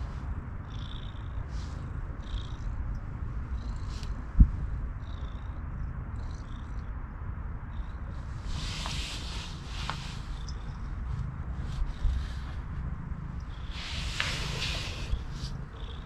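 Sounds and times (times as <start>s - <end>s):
cat purring: 0.6s - 6.8s, 7.7s - 16.0s
soft rustles: 8.2s - 16.0s.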